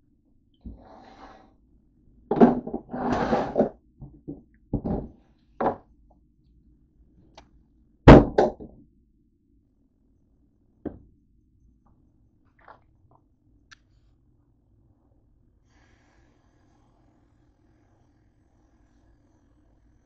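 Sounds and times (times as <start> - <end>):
knocks in cabinet: 2.3 - 2.8, 8.1 - 8.7.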